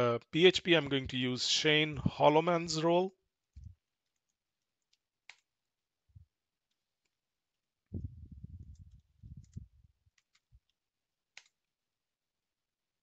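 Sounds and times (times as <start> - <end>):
low muffled rumble: 7.9 - 9.8
computer keyboard keys clicking: 8.6 - 11.7.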